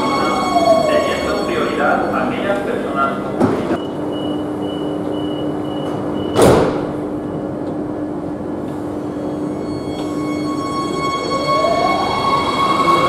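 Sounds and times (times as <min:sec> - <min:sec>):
train humming at platform: 0:00.0 - 0:13.0
train doors shutting: 0:03.2 - 0:07.8, 0:08.6 - 0:13.0.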